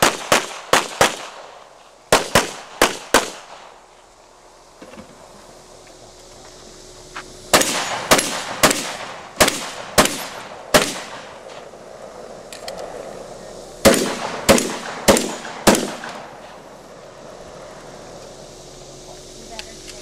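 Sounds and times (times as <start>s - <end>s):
gunshots with echo: 7.6s - 11.3s, 13.8s - 16.3s.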